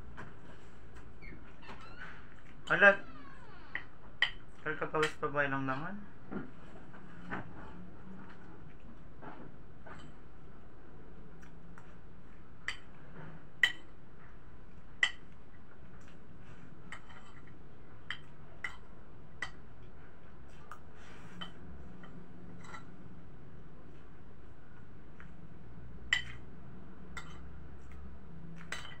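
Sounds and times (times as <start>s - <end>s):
metal spoon clinking on plate: 26.2s - 26.4s, 28.7s - 29.0s.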